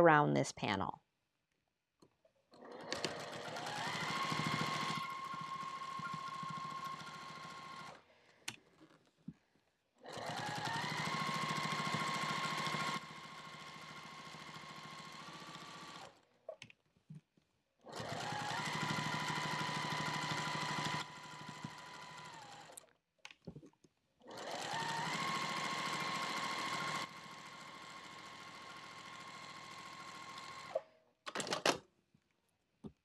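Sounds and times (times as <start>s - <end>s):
sewing machine stitching: 2.5s - 8.0s, 10.0s - 16.2s, 17.9s - 22.8s, 24.3s - 31.7s.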